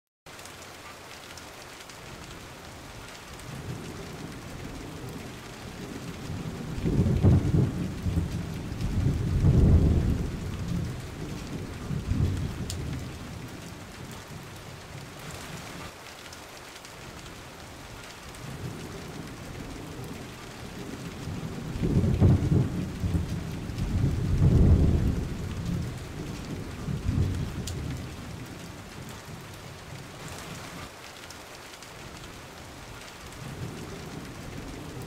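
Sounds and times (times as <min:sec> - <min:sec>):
heavy rain: 0:00.3 - 0:35.0
deep thunder roll: 0:03.6 - 0:13.6, 0:18.5 - 0:29.0.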